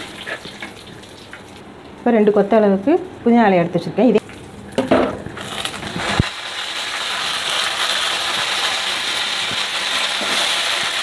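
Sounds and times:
leaves sizzling in hot oil: 5.4s - 11.0s.

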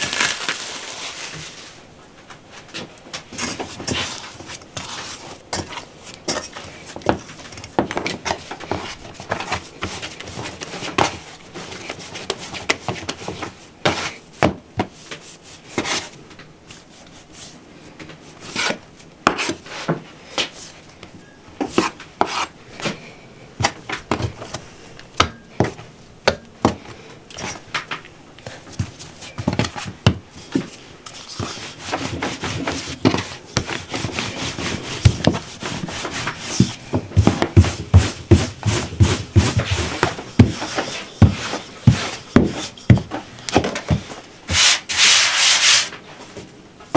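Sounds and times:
dough rubbing and slapping: 3.3s - 17.6s, 18.2s - 20.8s, 21.6s - 23.0s, 28.4s - 46.0s.

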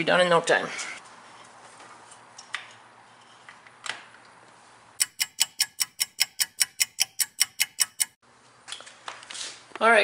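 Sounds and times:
rapid mechanical clicking: 5.0s - 8.2s.

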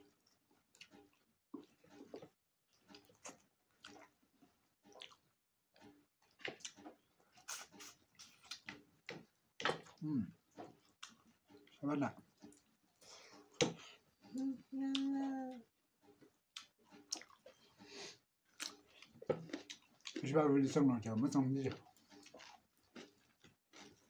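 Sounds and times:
wet chewing and lip smacks: 0.1s - 4.2s, 4.9s - 5.3s, 6.2s - 11.8s, 16.1s - 17.7s, 18.5s - 20.2s, 21.7s - 24.0s.

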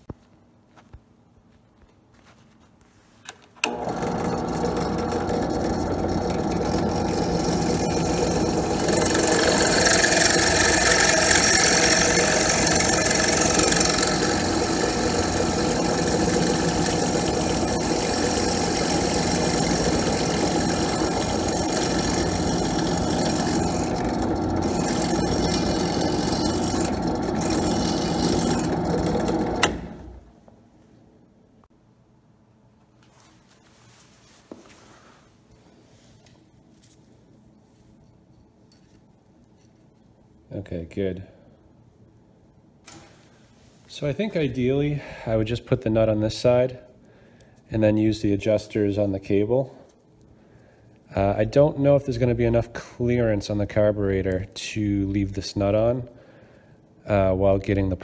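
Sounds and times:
drill press motor running: 3.6s - 30.3s
drill bit cutting metal: 3.7s - 30.0s.

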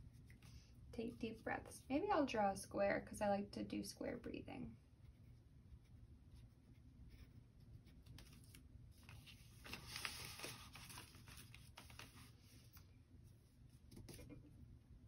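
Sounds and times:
paper shifting on cardboard: 8.2s - 12.4s.

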